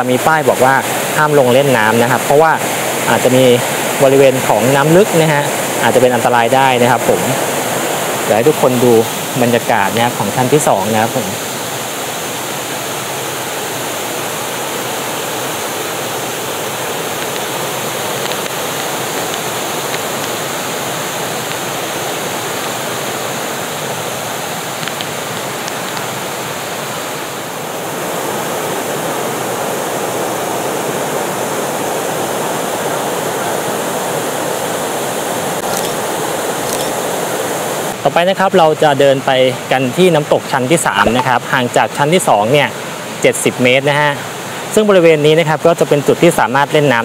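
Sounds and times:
water cascading into pool: 6.7s - 26.2s.

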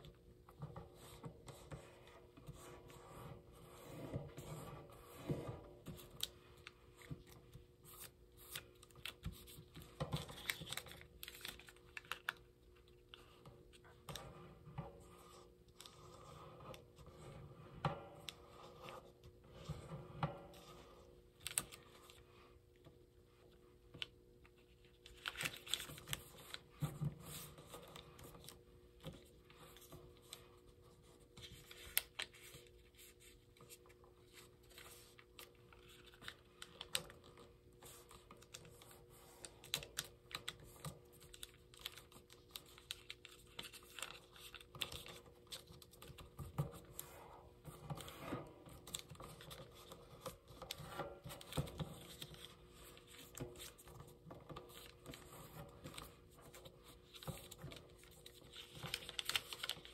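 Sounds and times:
paper crackling and rustling: 4.1s - 14.2s, 21.3s - 22.2s, 24.0s - 59.9s.

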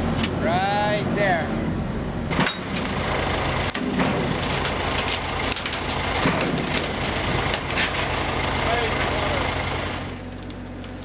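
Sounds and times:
forklift engine running: 0.0s - 11.0s
knocks and clanks: 2.3s - 3.0s, 3.7s - 9.3s.

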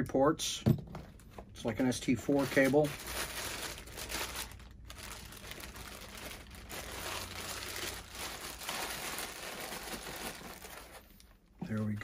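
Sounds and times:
plastic bag crinkling: 2.2s - 11.3s.

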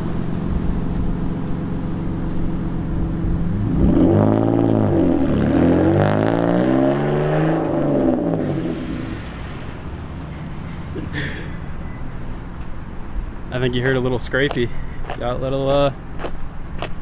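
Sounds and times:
car engine revving: 0.0s - 12.4s.

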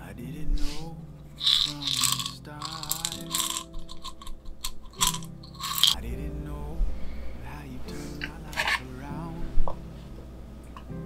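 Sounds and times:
soft background music with singing: 0.0s - 11.0s
plastic bottle rustling and rattling: 1.4s - 6.0s.

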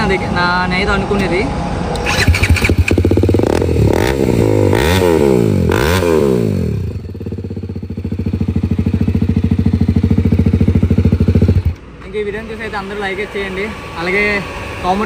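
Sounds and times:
motorcycle engine revving: 2.0s - 11.8s
motorcycle engine idling: 2.1s - 3.7s, 5.6s - 11.8s.

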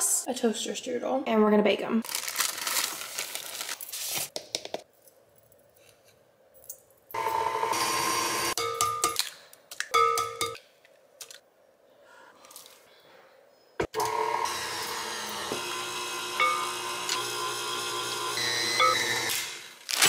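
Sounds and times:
stand mixer motor whisking: 7.2s - 8.6s, 14.0s - 19.6s.

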